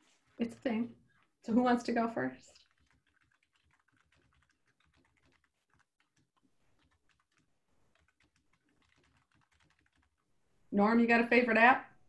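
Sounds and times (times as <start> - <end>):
computer keyboard typing clicks: 2.6 - 10.2.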